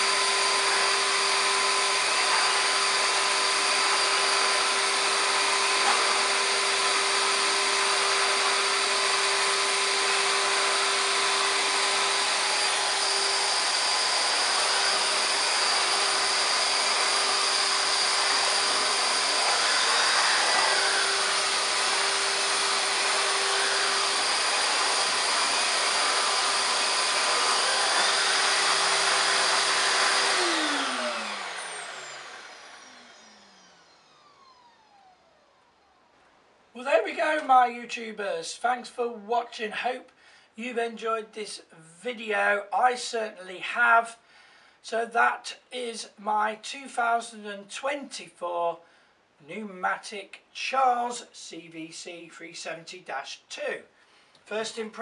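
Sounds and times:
vacuum head pushed over carpet: 0.0s - 35.4s
vacuum cleaner whining: 0.0s - 37.6s, 54.0s - 55.0s.

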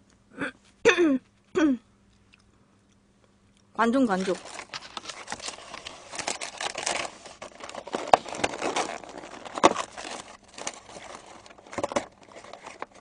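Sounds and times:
cardboard box crinkling: 4.1s - 13.0s.

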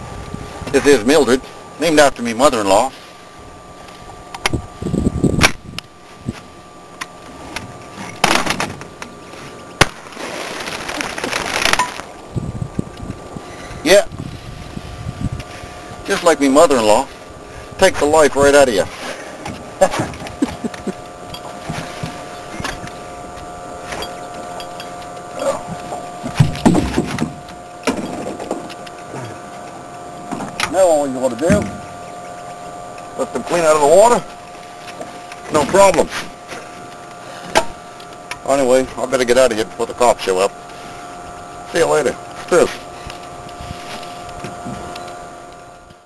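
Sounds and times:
steady whirring hum: 0.0s - 46.0s
knocks and thumps on boat: 25.6s - 28.7s, 31.4s - 31.9s.

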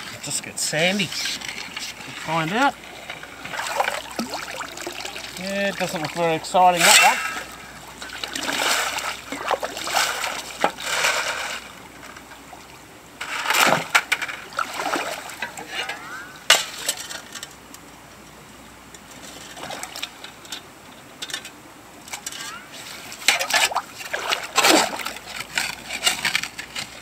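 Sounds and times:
stones scraping: 0.0s - 11.8s
water splashing and sloshing: 0.0s - 17.7s, 18.9s - 27.0s
shovel clink: 6.8s - 7.5s.

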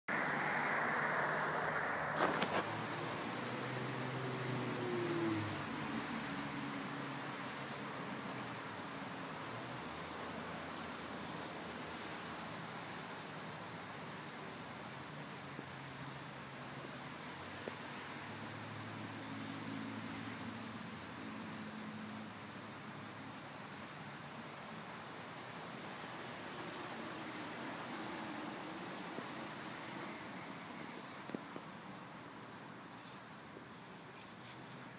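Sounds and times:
insects droning: 0.1s - 34.9s.

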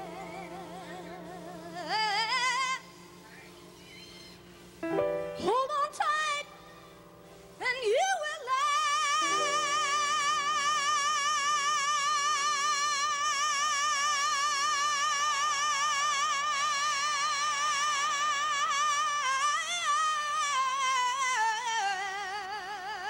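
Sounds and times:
piano chord: 0.0s - 2.8s, 4.8s - 6.3s, 9.2s - 12.0s
woman singing high note: 8.2s - 14.2s.

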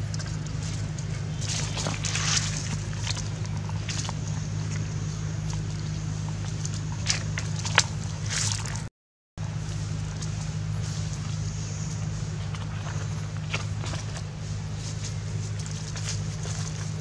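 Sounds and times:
dry leaves crackling underfoot: 0.0s - 17.0s
steady low hum: 0.0s - 17.0s.

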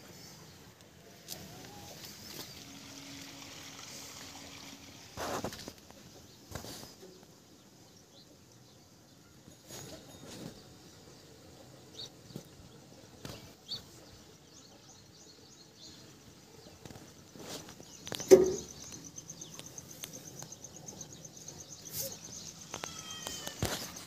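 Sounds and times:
sharp knock: 18.3s - 18.7s.

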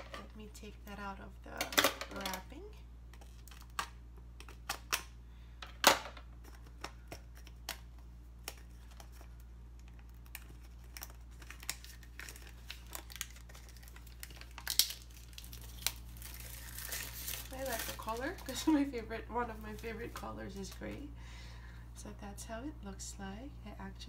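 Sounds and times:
plastic wrapping crinkling: 6.4s - 21.1s.

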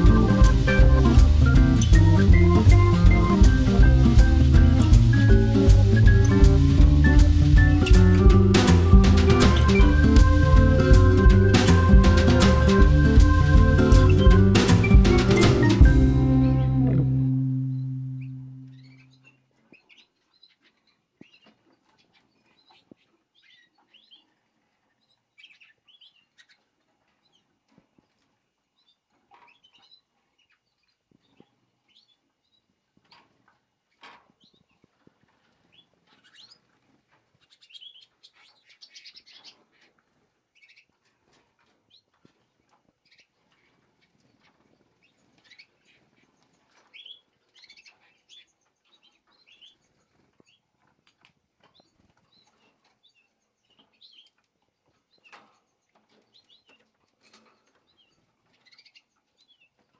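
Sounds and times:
canaries chirping: 0.0s - 24.3s, 25.0s - 26.6s, 35.7s - 36.8s, 37.4s - 39.9s, 40.6s - 40.9s, 43.0s - 50.6s, 51.6s - 54.5s, 55.1s - 59.9s.

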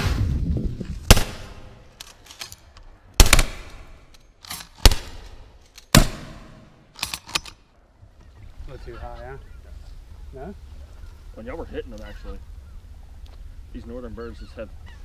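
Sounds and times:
faint shotgun shots: 1.1s - 1.8s, 3.2s - 4.0s, 4.8s - 6.8s
loud shotgun shots: 1.1s - 1.8s, 3.2s - 4.0s, 4.8s - 6.9s.

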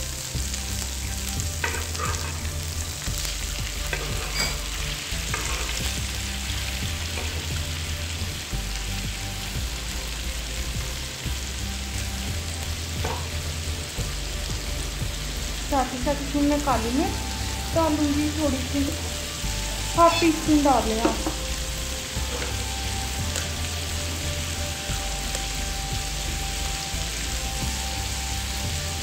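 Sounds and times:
chicken sizzling in frying pan: 0.0s - 29.0s
spatula scraping pan: 1.6s - 2.6s, 3.8s - 5.8s.

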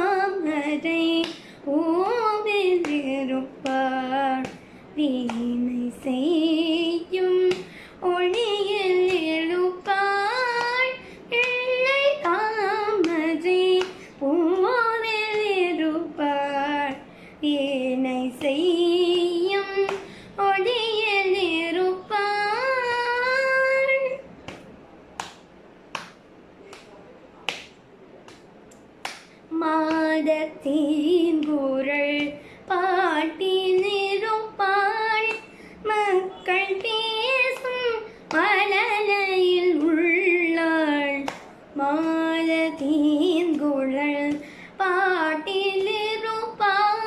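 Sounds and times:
girl singing unaccompanied: 0.0s - 24.3s, 29.5s - 47.0s
hand tapping on lap: 24.5s - 30.2s.

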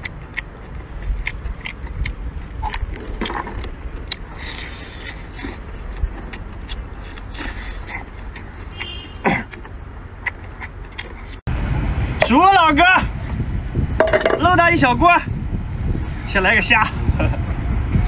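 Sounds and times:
mouth clicks and smacks: 0.0s - 11.4s
person chewing: 0.0s - 11.4s
sucking slurps: 0.0s - 11.4s.

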